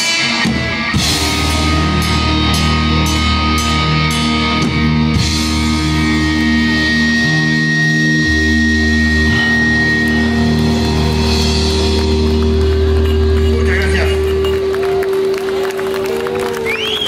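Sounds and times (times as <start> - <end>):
heavy metal band playing live: 0.0 - 16.0
thin high tone: 7.5 - 16.3.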